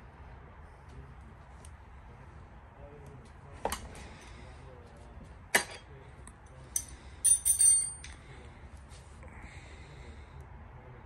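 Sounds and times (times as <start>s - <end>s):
hex key clinking on metal: 6.8s - 8.1s.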